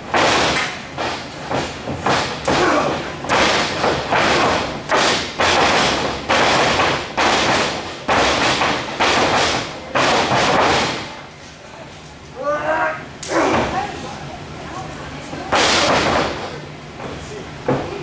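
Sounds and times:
heavy thuds of blows: 0.1 - 11.1.

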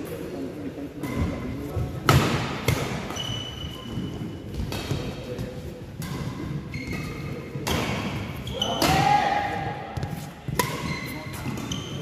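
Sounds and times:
shoes squeaking on court: 3.0 - 5.4, 6.0 - 7.6, 10.0 - 12.0.

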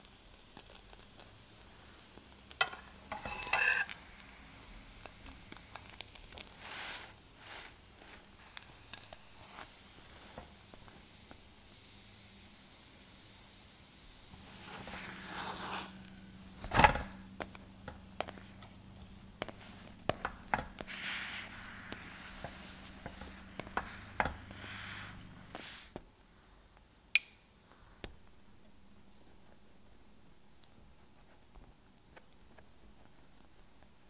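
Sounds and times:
spatula scraping a pan: 2.6 - 4.2, 14.4 - 25.9
dough thudding in a pan: 16.2 - 25.5.

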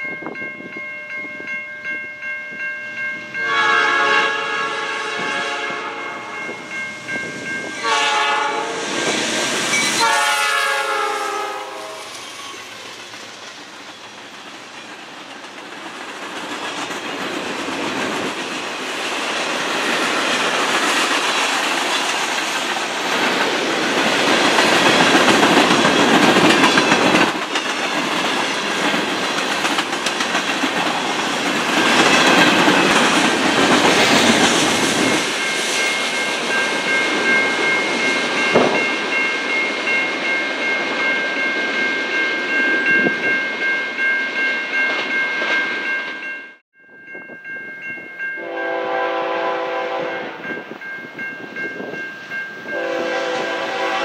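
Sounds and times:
diesel locomotives passing: 0.0 - 46.4, 47.0 - 54.0
locomotive horn: 3.4 - 6.4, 7.8 - 8.9, 10.0 - 12.1, 48.4 - 50.4, 52.7 - 54.0
train wheels clacking over rail joints: 12.1 - 36.9.

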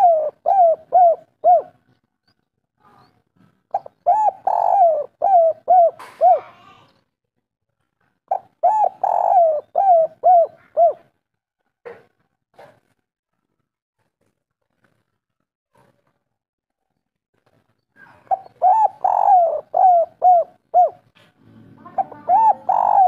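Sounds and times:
dove cooing: 0.0 - 1.9, 3.7 - 6.8, 8.3 - 11.2, 18.0 - 23.0.

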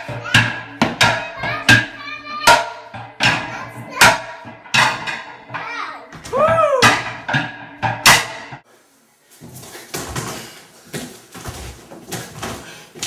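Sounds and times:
sharp bangs of people hitting obstacles: 6.3 - 8.6.

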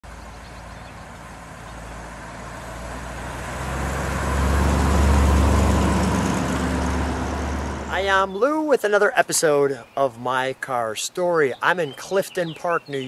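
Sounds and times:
car engine and exhaust rumble: 0.0 - 8.3.

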